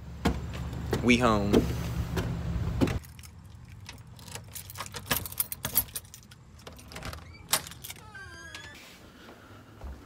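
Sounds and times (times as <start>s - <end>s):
keys jingling in a lock: 3.0s - 8.8s.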